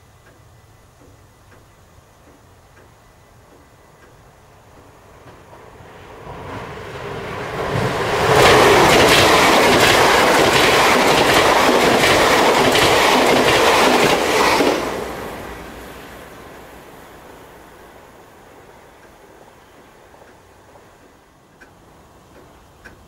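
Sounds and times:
train passing at speed: 0.0 - 23.0
wheels clattering over rail joints: 1.0 - 18.2.

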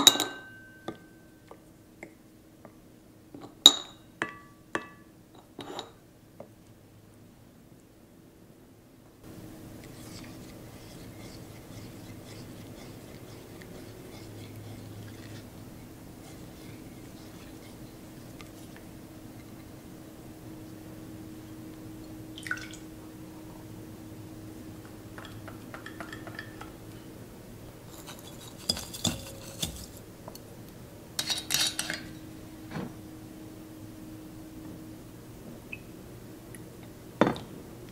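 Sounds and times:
glass bowls clinking: 0.0 - 1.2, 25.1 - 27.0, 27.9 - 30.0, 31.2 - 32.3
low steady hum: 0.0 - 37.9
spatula scraping glass bowl: 9.8 - 18.8, 27.9 - 30.0.

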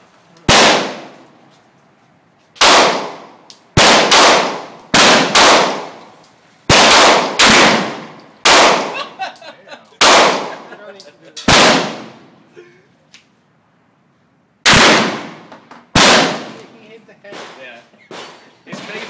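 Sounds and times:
handgun shots echoing: 2.6 - 6.1.

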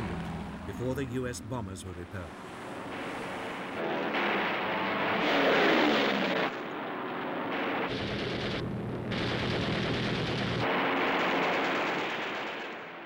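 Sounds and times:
plane engine whine falling: 0.0 - 11.8
low aircraft engine drone: 0.0 - 12.6
gunfire: 2.9 - 13.0.

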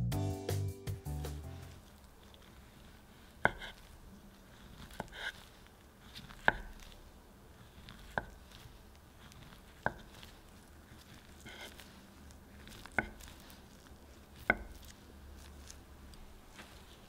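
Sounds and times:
knife tapping cutting board: 3.4 - 3.9, 6.4 - 6.9, 8.0 - 8.5, 9.8 - 10.3, 14.4 - 14.9.

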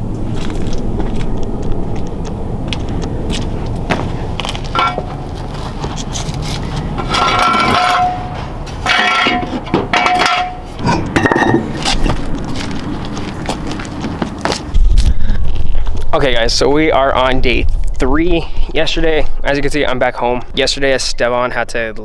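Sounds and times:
metal tools clinking: 4.7 - 5.2, 6.0 - 12.2.

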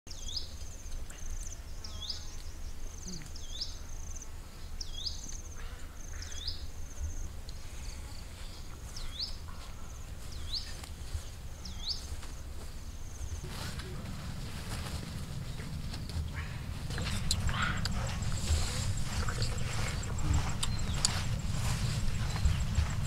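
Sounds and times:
steady low rumble: 12.4 - 23.0.

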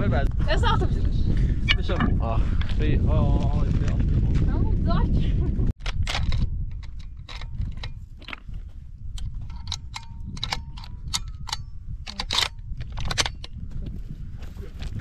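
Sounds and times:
steady low rumble: 0.0 - 15.0
metallic clinking: 1.7 - 2.2.

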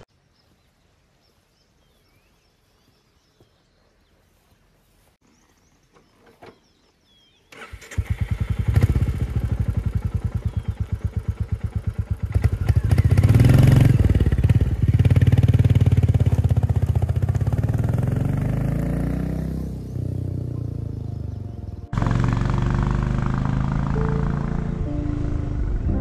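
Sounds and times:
motorcycle engine starting and idling: 7.5 - 26.0
motorcycle revving and pulling away: 7.5 - 26.0.

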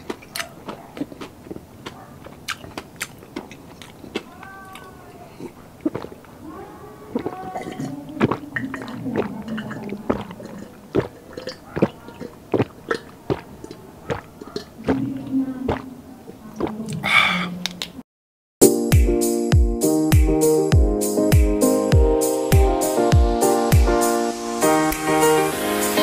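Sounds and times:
throat clicks: 0.0 - 6.3, 7.2 - 15.9
person gulping water: 0.0 - 6.4, 7.0 - 17.8
low throat tones: 7.1 - 11.6.

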